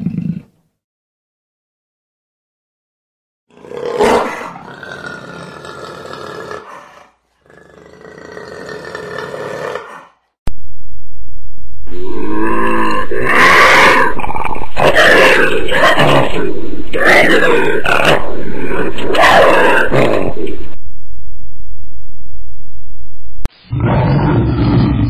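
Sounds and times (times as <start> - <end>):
big cat roaring: 3.5 - 10.2, 11.9 - 20.7, 23.7 - 25.0.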